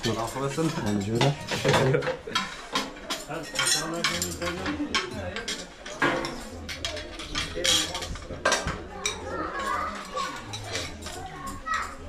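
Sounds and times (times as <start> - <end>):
dishes and cutlery clattering: 0.0 - 12.0
people talking: 3.3 - 12.0.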